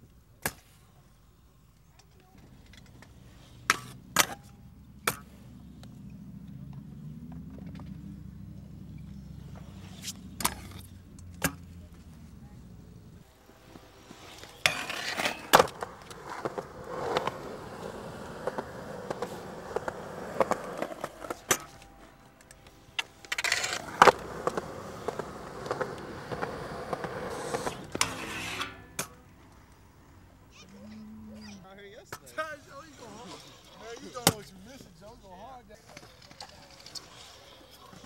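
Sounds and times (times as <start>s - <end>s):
scooter wheels rolling on concrete: 1.7s - 38.0s.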